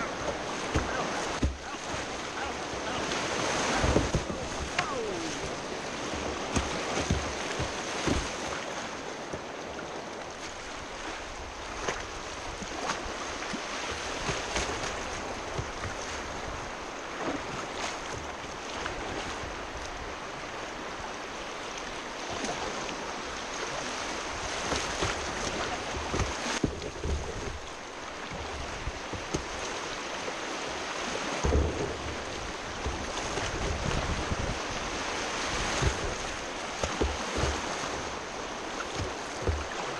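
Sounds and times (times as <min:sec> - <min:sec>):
river rapids rushing and splashing: 0:00.0 - 0:39.9
wind buffeting microphone: 0:31.4 - 0:39.8.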